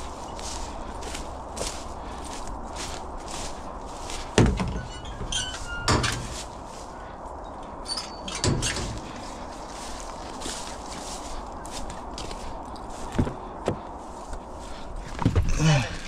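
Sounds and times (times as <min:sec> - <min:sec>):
metal gate doors banging shut: 0:04.4 - 0:06.4, 0:07.8 - 0:09.1.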